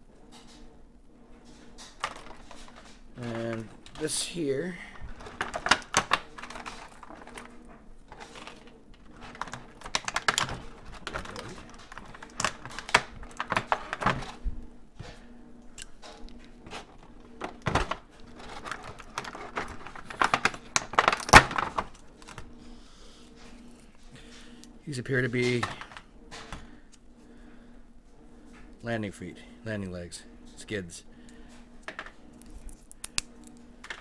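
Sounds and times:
plastic parts clicking and rattling: 1.8 - 4.1, 5.0 - 14.4, 16.0 - 22.4.

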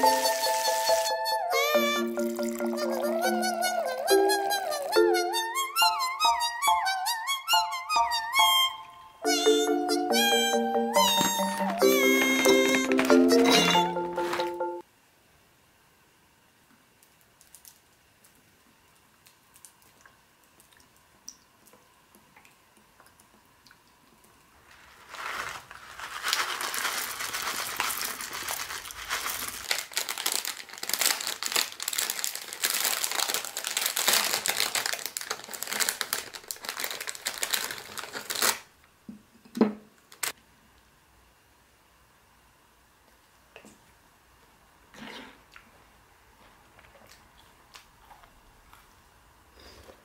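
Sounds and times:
plastic bag crinkling: 1.8 - 6.5, 24.6 - 38.7.

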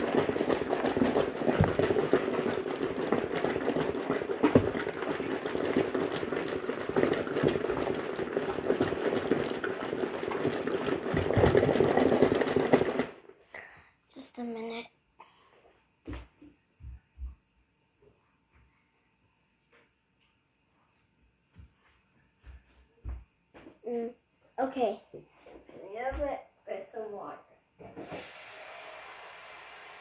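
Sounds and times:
water churning in tub: 0.0 - 13.2
washing machine motor humming: 0.0 - 13.3, 28.0 - 30.0.

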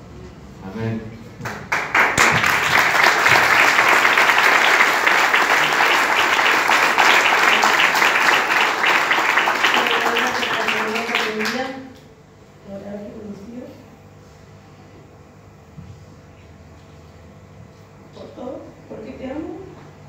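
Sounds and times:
crowd applauding: 1.4 - 11.8.

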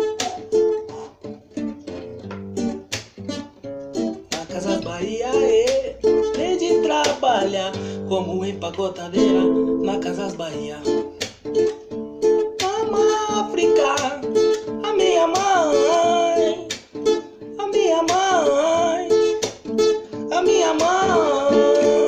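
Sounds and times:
acoustic guitar strumming: 0.0 - 22.0
man singing: 4.2 - 11.2, 12.6 - 16.8, 17.5 - 19.5, 20.2 - 22.0.

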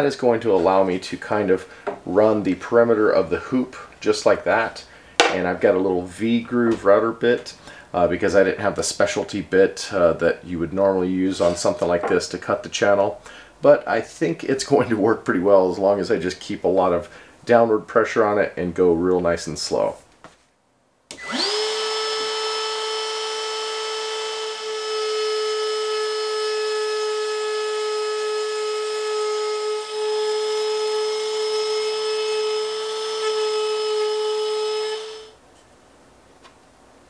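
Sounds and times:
trim router whining: 21.1 - 35.4.

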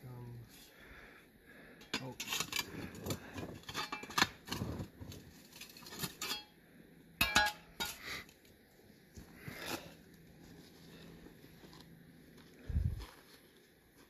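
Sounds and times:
metal shovel scraping stones: 1.9 - 6.6
ringing metallic clank: 7.2 - 8.0.

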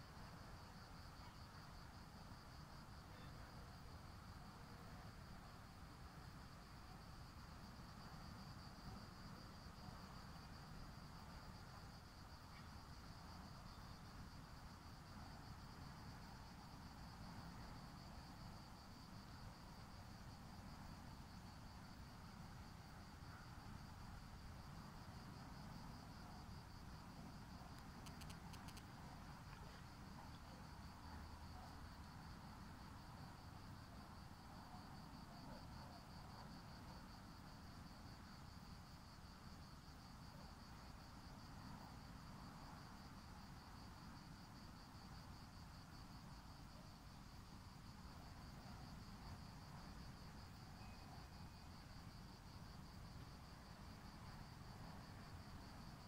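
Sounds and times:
high-pitched insect trill: 50.1 - 52.8.

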